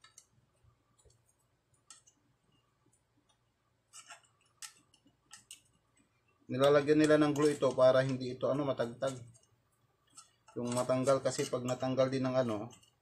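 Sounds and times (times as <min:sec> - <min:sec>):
hands handling circuit board: 0:02.9 - 0:13.0.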